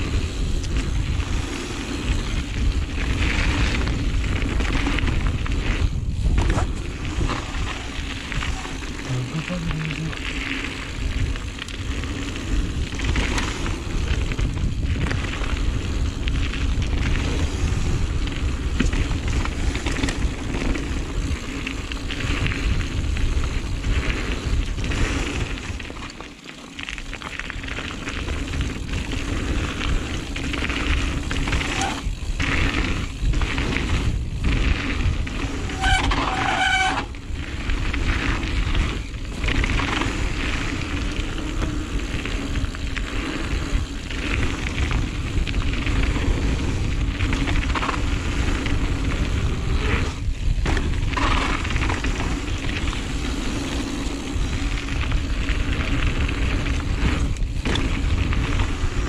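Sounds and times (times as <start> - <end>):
wind buffeting microphone: 0.0 - 26.0, 27.4 - 59.0
bike rattling over trail: 0.0 - 59.0
tyre roar: 6.4 - 10.6.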